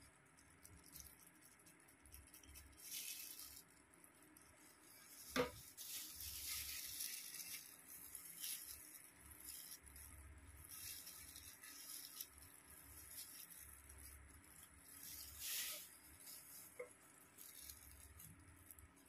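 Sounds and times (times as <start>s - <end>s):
plastic gloves rustling: 0.0s - 19.0s
brush scratching through hair: 4.7s - 18.4s.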